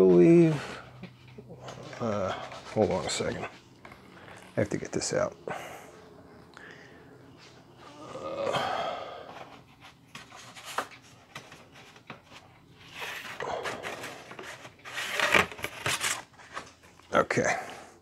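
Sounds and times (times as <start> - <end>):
rustling on a shelf: 0.0 - 5.2, 9.2 - 17.2
person breathing hard: 5.4 - 9.6, 13.4 - 14.4.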